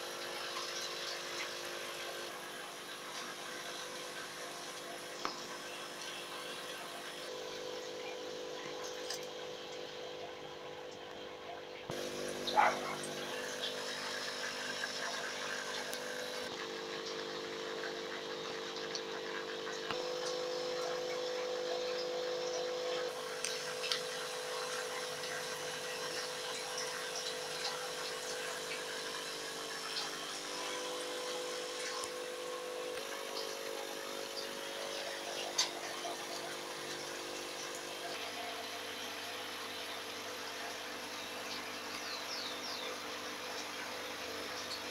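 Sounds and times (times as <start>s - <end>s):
aquarium pumps humming: 0.0s - 44.9s.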